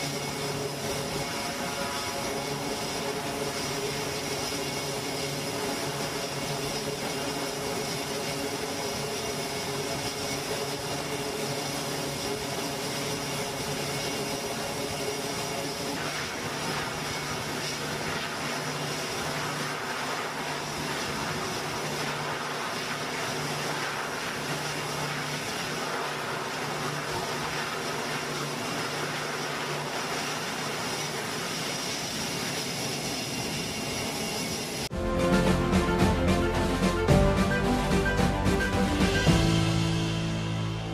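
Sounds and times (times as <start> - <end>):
propeller and exhaust hiss: 0.0 - 40.9
turboprop engines running: 0.0 - 40.9
music: 34.9 - 40.9.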